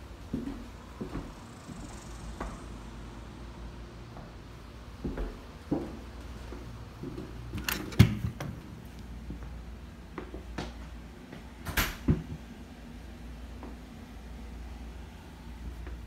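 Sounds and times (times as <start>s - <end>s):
door opening and shutting: 7.5s - 8.6s.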